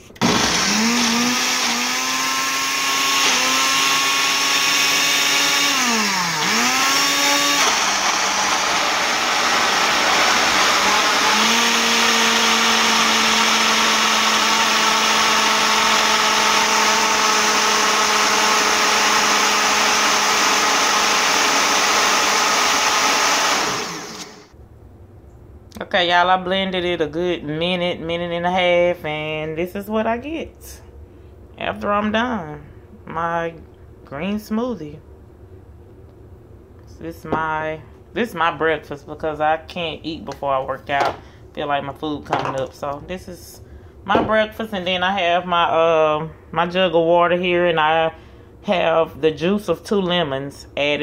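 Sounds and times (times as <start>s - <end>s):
blender motor running: 0.2s - 24.5s.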